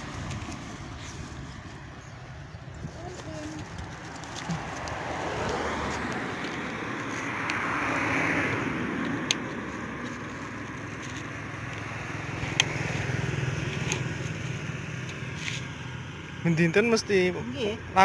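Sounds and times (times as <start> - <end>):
low engine hum: 0.0 - 18.0
vehicle passing: 0.0 - 18.0.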